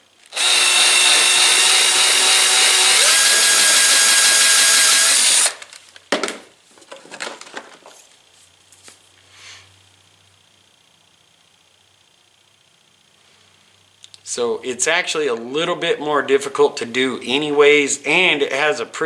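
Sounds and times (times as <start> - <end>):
cordless drill spinning: 0.2 - 5.8.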